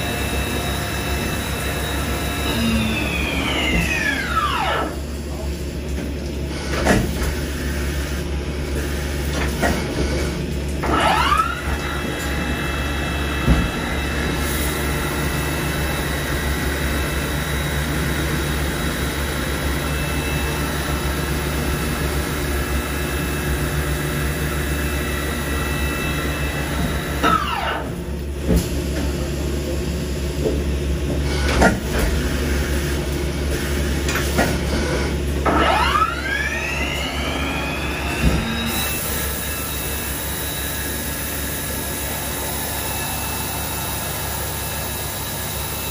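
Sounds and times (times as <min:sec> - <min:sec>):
machine spindle whine: 0:00.0 - 0:05.4, 0:10.8 - 0:28.2, 0:33.4 - 0:45.9
steady machine hum: 0:00.0 - 0:45.9.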